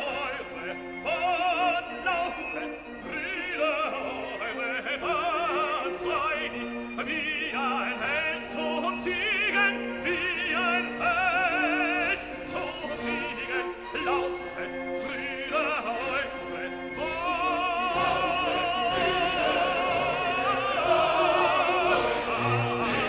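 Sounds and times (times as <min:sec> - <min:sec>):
classical accompaniment: 0:00.0 - 0:23.0
opera singing with vibrato: 0:00.0 - 0:23.0.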